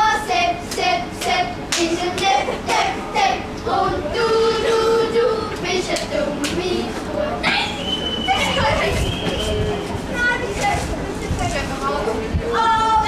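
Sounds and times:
children singing together: 0:00.0 - 0:07.5
rhythmic hand claps: 0:00.6 - 0:02.9, 0:05.9 - 0:06.6.

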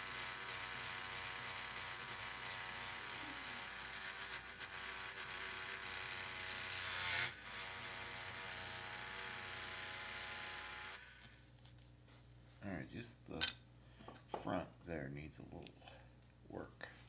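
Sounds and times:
rotary tool motor whine: 0:00.0 - 0:11.4.

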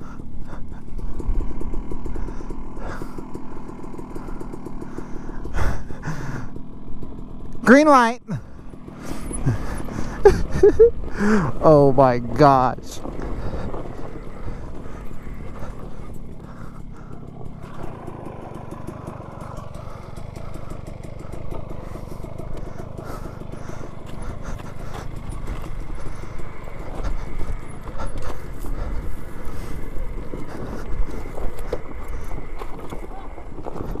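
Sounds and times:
electric dirt bike rumble: 0:00.0 - 0:34.0
tyres crunching: 0:00.0 - 0:34.0
chassis rattling over stones: 0:08.8 - 0:34.0.

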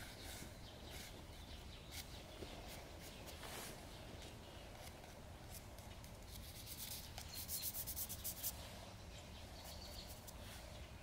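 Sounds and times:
pastel scratching on paper: 0:06.2 - 0:08.6.

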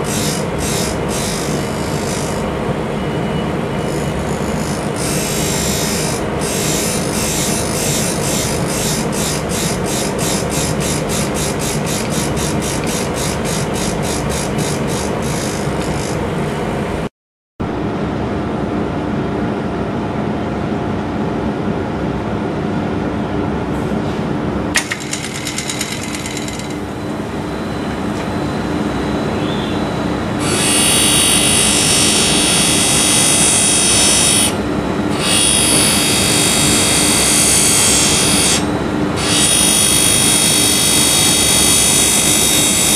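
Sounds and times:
stone grinding on wheel: 0:00.0 - 0:02.5, 0:03.8 - 0:16.2, 0:24.8 - 0:26.8, 0:35.2 - 0:38.6, 0:39.2 - 0:42.9
grinding wheel motor hum: 0:00.0 - 0:17.0, 0:24.8 - 0:42.9.

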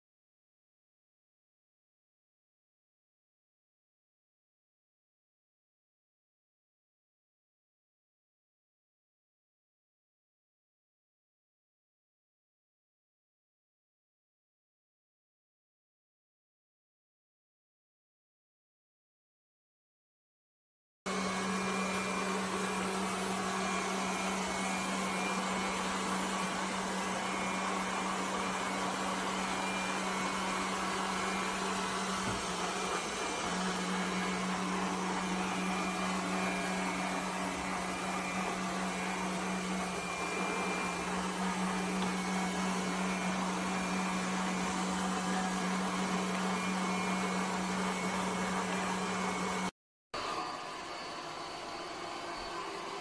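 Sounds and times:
robot vacuum cleaner whirring: 0:21.1 - 0:53.0.

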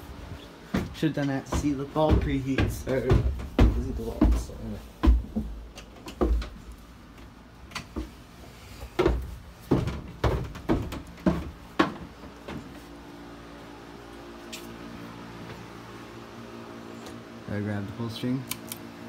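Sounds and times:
knocks and thumps of handling: 0:00.7 - 0:06.7, 0:08.8 - 0:12.8.

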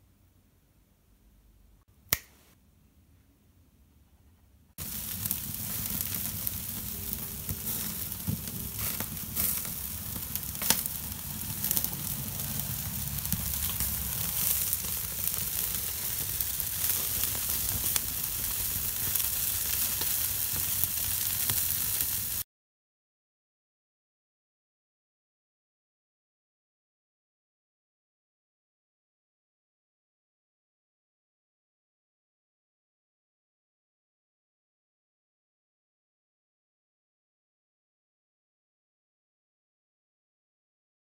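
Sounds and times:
meat sizzling on a grill: 0:04.8 - 0:22.4
wood fire popping and crackling: 0:04.8 - 0:22.4.

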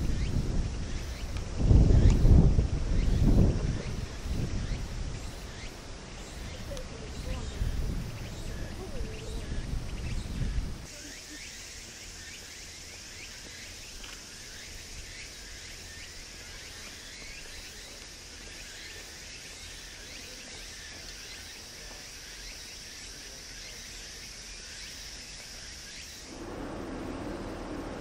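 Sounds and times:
high-pitched insect drone: 0:10.4 - 0:26.4
low rushing noise: 0:26.3 - 0:28.0.

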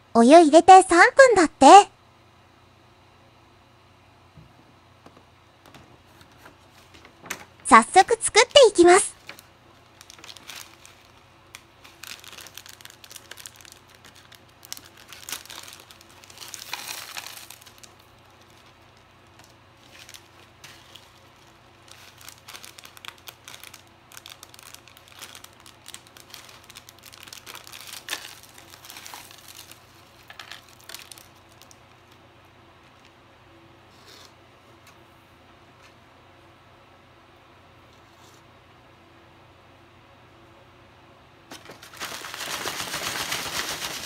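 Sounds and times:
plastic packets crinkling and tearing: 0:09.1 - 0:32.2, 0:41.5 - 0:44.0.

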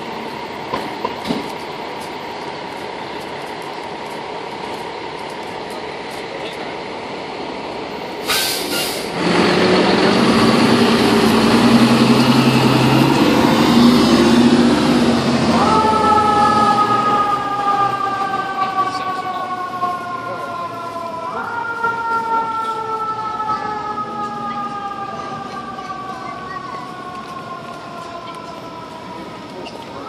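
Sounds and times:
diesel engine idling: 0:00.0 - 0:21.4
air brakes hissing: 0:08.2 - 0:09.2
engine revving: 0:09.0 - 0:19.3.

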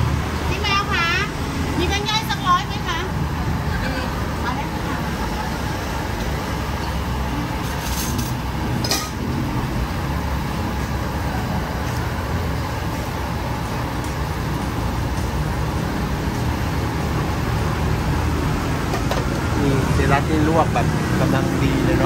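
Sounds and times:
road traffic rumble: 0:00.0 - 0:22.0
dish or utensil clatter: 0:07.8 - 0:09.2.

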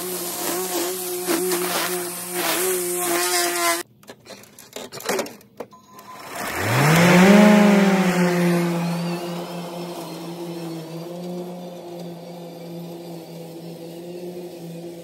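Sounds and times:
electric motor whining: 0:06.1 - 0:15.0.

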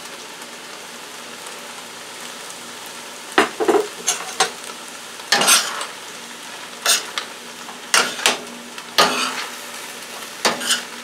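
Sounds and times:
rice sizzling in a skillet: 0:00.0 - 0:11.0
metal utensil scraping a pan: 0:03.6 - 0:04.6, 0:05.3 - 0:06.0, 0:06.8 - 0:07.3, 0:07.9 - 0:08.4, 0:09.0 - 0:09.6, 0:10.4 - 0:11.0.

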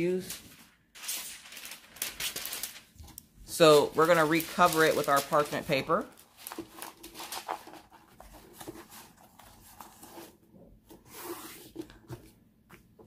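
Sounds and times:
parchment paper rustling: 0:00.0 - 0:13.0.

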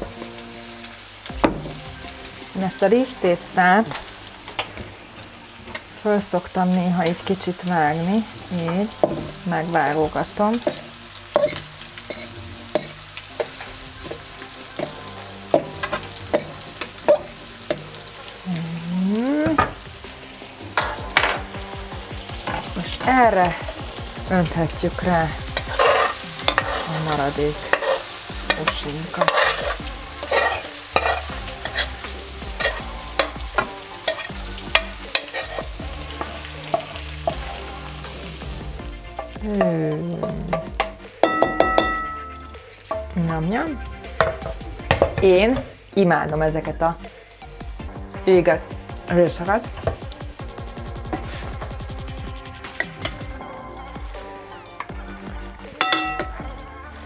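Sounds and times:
frying pan sizzling: 0:00.0 - 0:57.0
metal utensil scraping steel bowl: 0:08.6 - 0:18.0, 0:25.5 - 0:37.5, 0:39.1 - 0:43.0, 0:55.8 - 0:56.4.

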